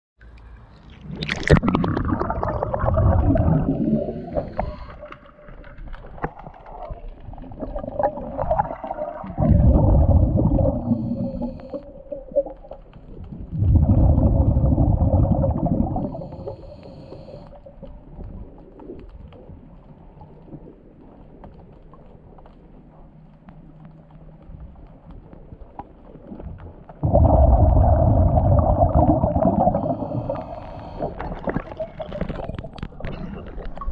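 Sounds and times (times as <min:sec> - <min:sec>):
muffled underwater rumbling: 0:00.5 - 0:33.9.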